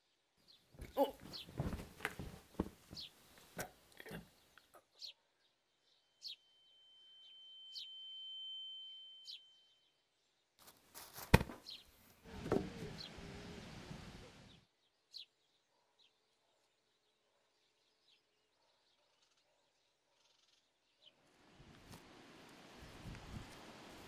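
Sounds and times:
birds chirping: 0:00.5 - 0:06.6, 0:11.3 - 0:16.1
scuffling: 0:00.8 - 0:03.7, 0:10.6 - 0:13.1.

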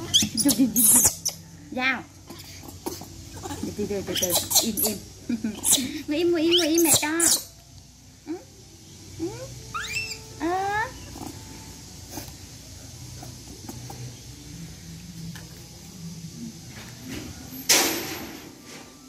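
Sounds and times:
baby monkey squealing: 0:00.0 - 0:01.4, 0:02.3 - 0:07.6, 0:09.2 - 0:11.4.

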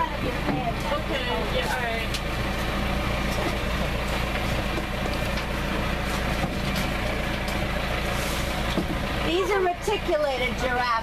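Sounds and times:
tractor engine humming: 0:00.0 - 0:11.0.

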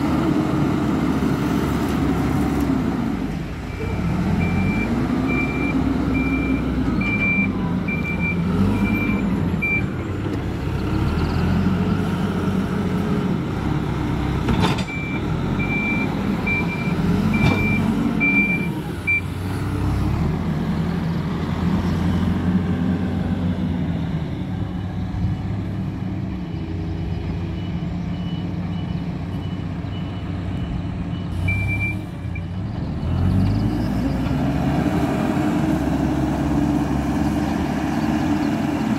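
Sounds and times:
diesel engine running: 0:00.0 - 0:38.9
reversing alarm beeps: 0:03.7 - 0:09.9, 0:14.9 - 0:19.3, 0:27.5 - 0:32.7.

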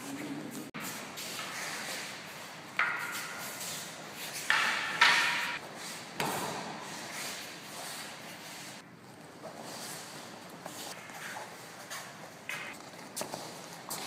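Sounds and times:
wooden swords clacking together: 0:02.7 - 0:03.6, 0:04.3 - 0:05.6.

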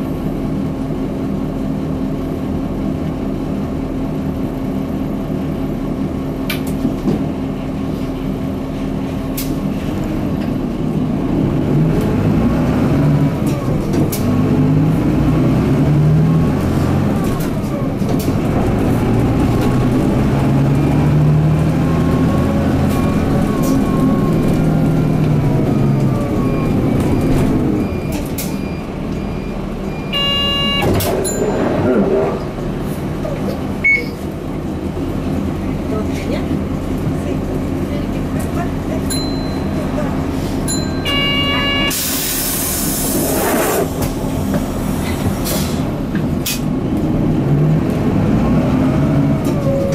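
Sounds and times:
bus diesel engine accelerating: 0:00.0 - 0:49.9
electronic tone: 0:29.2 - 0:31.6.

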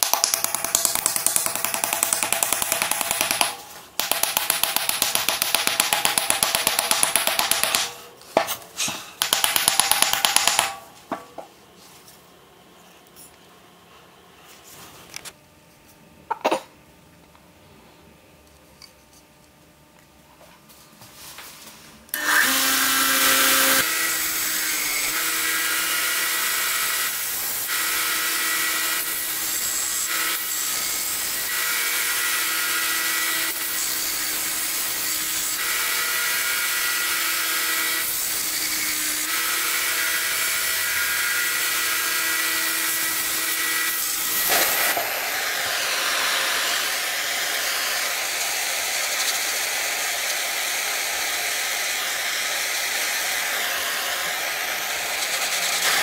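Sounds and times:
belt sander running: 0:43.0 - 0:56.0.

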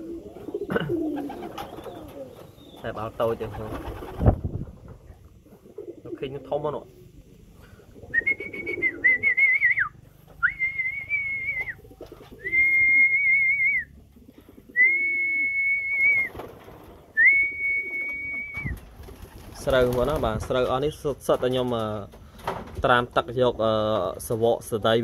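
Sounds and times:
pigeons cooing: 0:00.0 - 0:10.3, 0:11.0 - 0:20.2
person whistling high notes: 0:08.2 - 0:11.8, 0:12.4 - 0:13.9, 0:14.8 - 0:16.3, 0:17.2 - 0:18.7.

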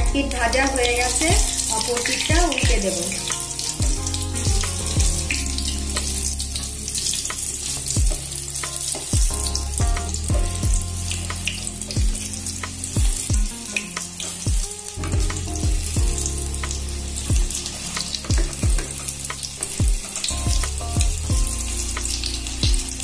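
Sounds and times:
food sizzling in hot oil: 0:00.0 - 0:23.0.

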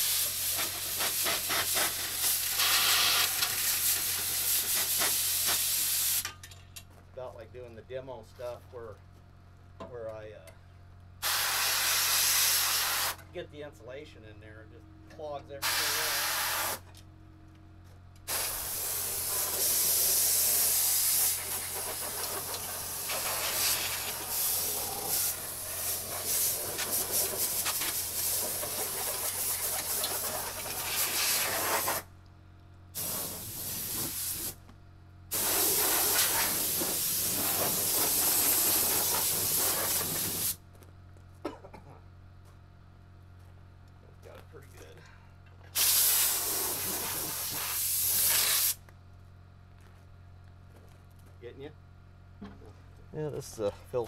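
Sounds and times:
compressed air gun hissing: 0:00.0 - 0:06.3, 0:11.2 - 0:13.2, 0:15.6 - 0:16.9, 0:18.3 - 0:32.1, 0:33.0 - 0:34.6, 0:35.3 - 0:40.6, 0:45.7 - 0:48.8.

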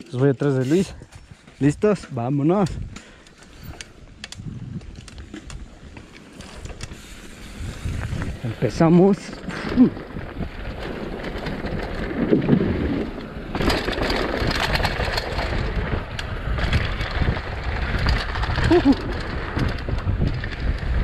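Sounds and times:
bike knocking and rattling: 0:00.0 - 0:21.0
bike tyres on dirt and gravel: 0:00.0 - 0:21.0
wind on microphone: 0:03.6 - 0:05.8, 0:06.7 - 0:08.9, 0:09.6 - 0:21.0.

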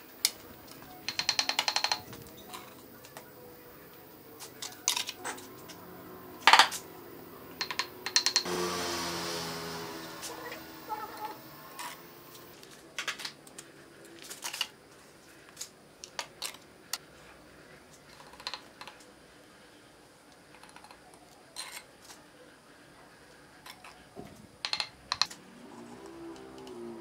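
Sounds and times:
bricks clicking and tapping: 0:00.2 - 0:03.2.

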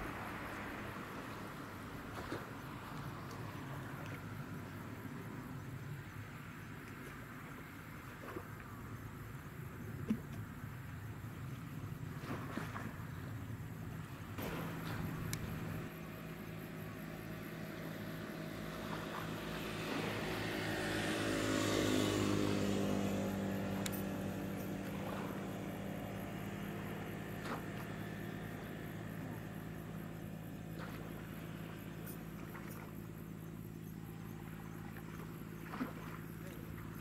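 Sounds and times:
boat diesel engine droning: 0:00.0 - 0:37.0
bow wave rushing: 0:14.4 - 0:28.6.

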